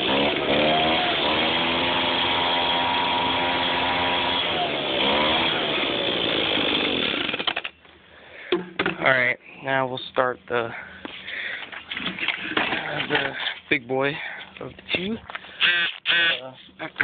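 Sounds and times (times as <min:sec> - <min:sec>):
leaf blower engine running: 0:00.0 - 0:07.7.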